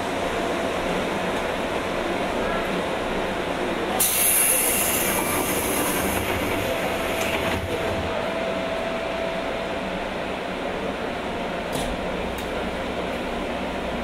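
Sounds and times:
train wheels rumbling on rail: 0.0s - 8.2s, 8.8s - 14.0s
hiss: 4.0s - 6.3s.

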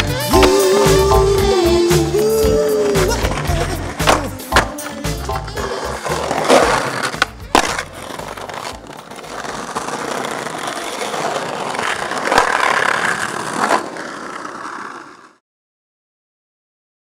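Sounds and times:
skateboard clacking: 0.0s - 15.4s
skateboard wheels rolling on bricks: 2.8s - 15.4s
skateboard knock: 3.0s - 10.8s.

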